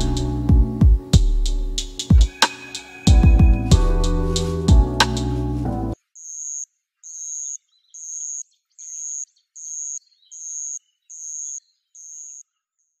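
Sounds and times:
high-pitched chirping calls: 1.9 - 5.4.

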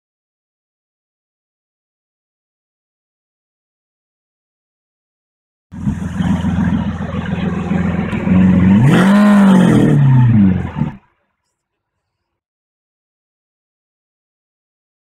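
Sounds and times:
car engine idling and revving: 5.7 - 11.0.

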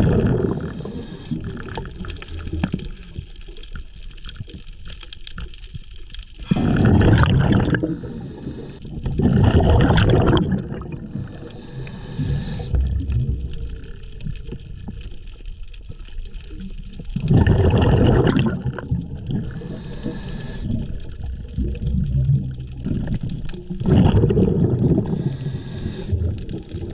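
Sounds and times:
gurgling exhaled bubbles: 0.0 - 4.6, 6.4 - 26.9
hiss of inhaled air: 0.6 - 1.4, 7.8 - 8.8, 11.1 - 12.8, 19.5 - 20.8, 25.0 - 26.2.

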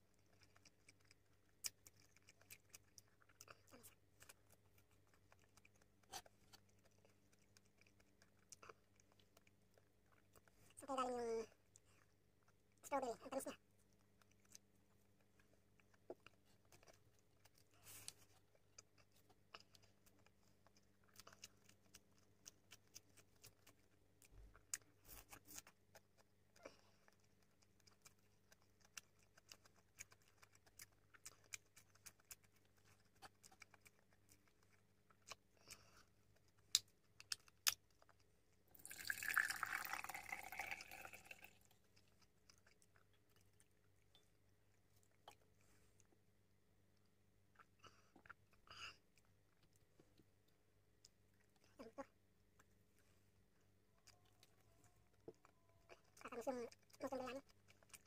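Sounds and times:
soft chewing: 0.0 - 58.0
juice pouring into a glass: 38.8 - 41.7.

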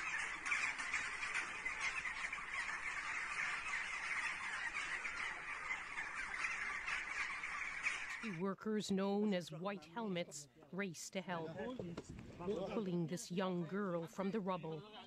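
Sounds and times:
flock of birds calling: 0.0 - 8.6.

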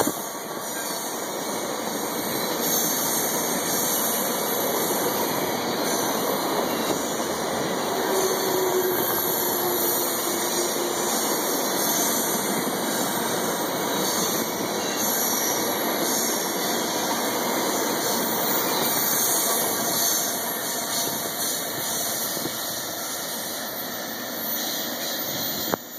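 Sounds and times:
train wheels rumbling on rail: 0.0 - 25.9.

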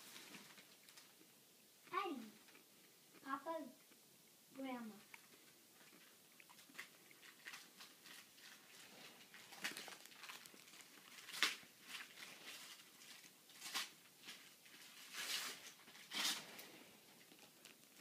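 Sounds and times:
wrapping paper rustling and tearing: 6.6 - 18.0.

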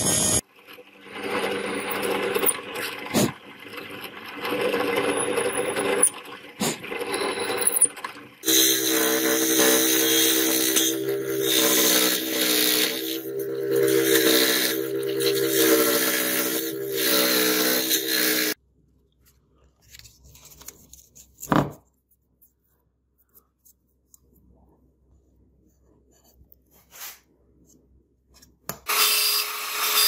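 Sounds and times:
drill press boring metal: 1.0 - 18.6, 28.9 - 30.0
motor hum with cutting noise: 8.4 - 18.6, 28.8 - 30.0.

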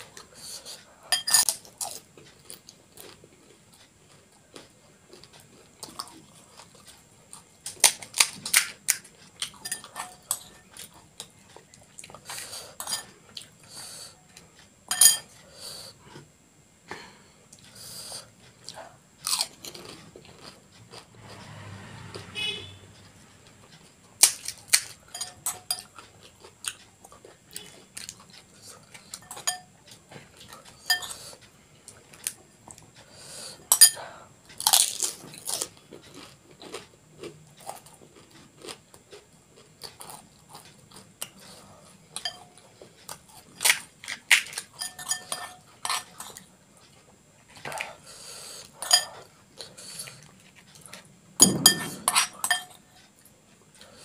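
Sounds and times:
metal spoon clinking in glass bowl: 1.1 - 1.5, 9.6 - 10.6, 14.9 - 15.3, 25.1 - 25.9, 29.2 - 29.7, 30.9 - 31.2, 33.7 - 34.0, 42.2 - 42.5, 44.8 - 46.0, 48.8 - 49.2, 51.4 - 52.8.

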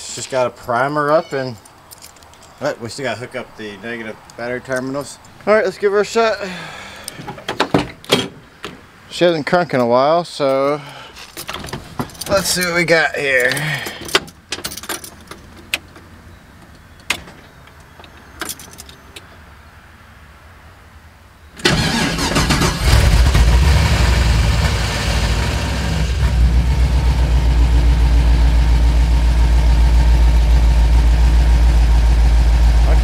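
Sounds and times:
truck engine starting and idling: 21.6 - 33.0.

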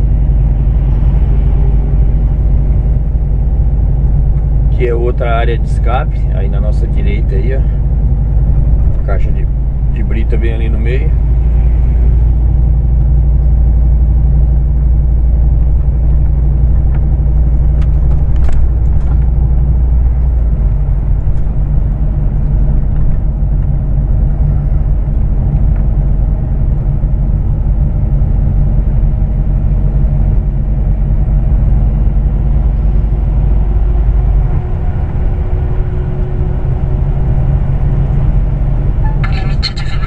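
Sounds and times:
truck diesel engine droning: 0.0 - 40.0.

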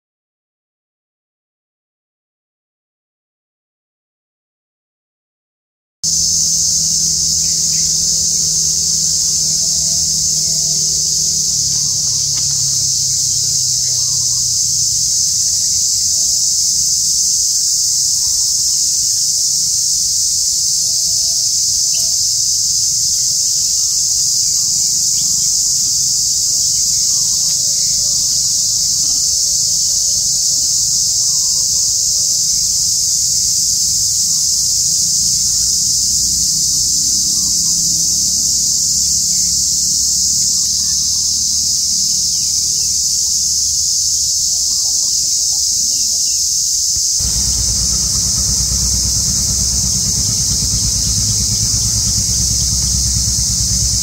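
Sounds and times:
insect chorus droning: 6.1 - 54.0
low rumble: 47.2 - 54.0.

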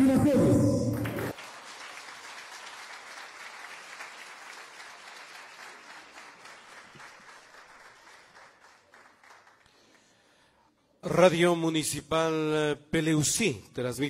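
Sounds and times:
audience applause: 1.0 - 10.0.

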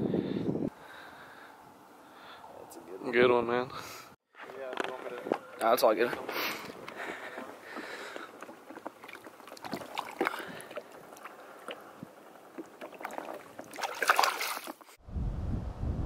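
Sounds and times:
wind buffeting microphone: 0.0 - 0.8, 15.0 - 16.0
water sloshing and splashing: 6.6 - 15.0.

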